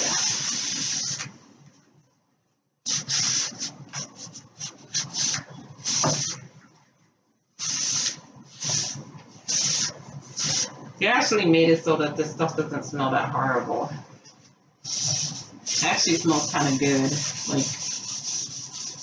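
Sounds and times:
scrubbing and wiping wood: 0:14.9 - 0:19.0.

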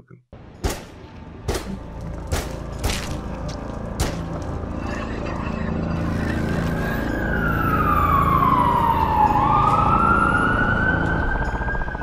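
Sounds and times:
siren wailing: 0:05.7 - 0:12.0.

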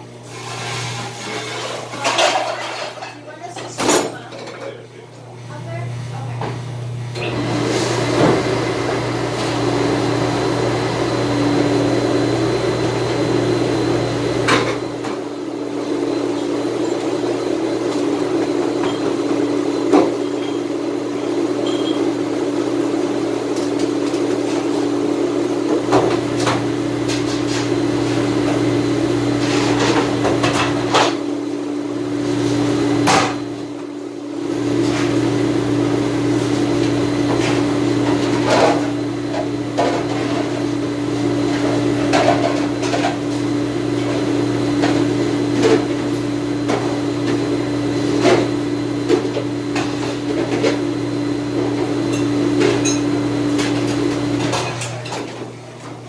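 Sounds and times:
dishwashing machinery hum: 0:00.0 - 0:56.0
dishes and racks clattering: 0:00.4 - 0:05.0, 0:16.3 - 0:22.1, 0:29.3 - 0:31.3, 0:37.2 - 0:56.0.

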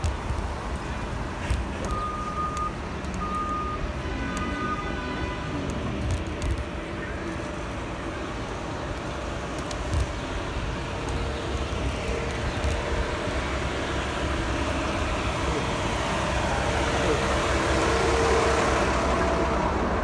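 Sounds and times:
traffic engines and tyres rumbling: 0:00.0 - 0:20.0.

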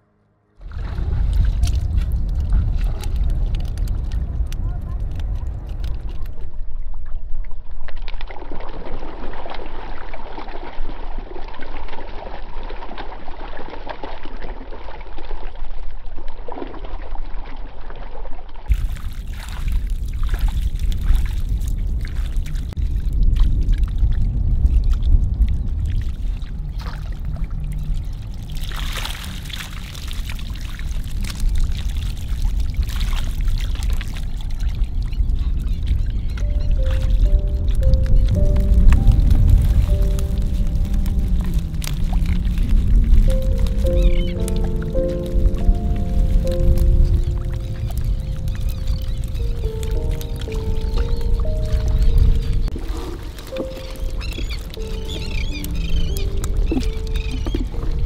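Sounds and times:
water sloshing: 0:00.6 - 0:06.6, 0:18.7 - 0:58.0
low rumble: 0:00.6 - 0:07.4, 0:18.7 - 0:58.0
water splashing and trickling: 0:00.6 - 0:58.0.

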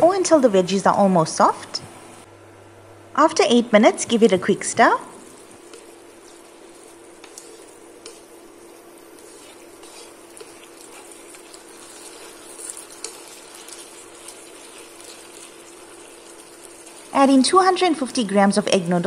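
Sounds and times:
stir-fry sizzling in a wok: 0:04.4 - 0:18.3
chopsticks scraping a pan: 0:05.3 - 0:17.1.

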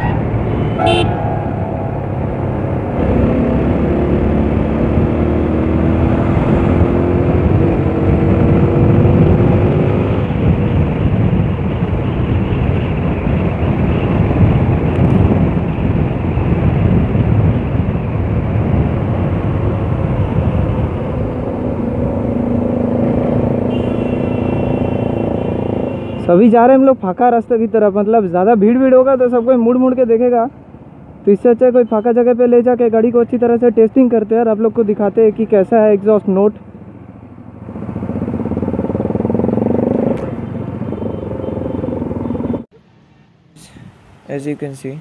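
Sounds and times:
motorcycle engine rumbling: 0:00.0 - 0:06.2, 0:36.6 - 0:43.8.

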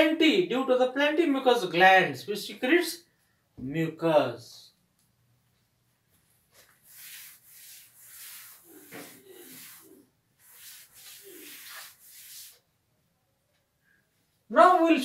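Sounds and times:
chalk rubbed off blackboard: 0:06.8 - 0:12.6.

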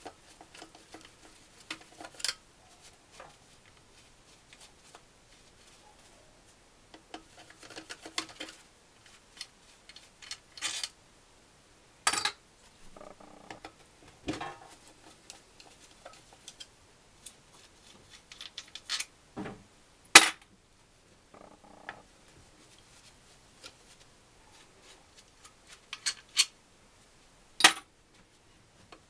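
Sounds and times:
metal parts clinking: 0:10.2 - 0:11.0, 0:27.6 - 0:27.8.

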